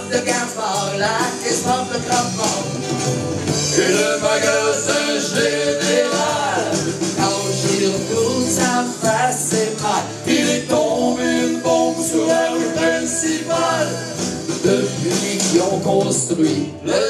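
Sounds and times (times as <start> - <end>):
electric guitar accompaniment: 0.0 - 17.0
person singing: 3.8 - 17.0.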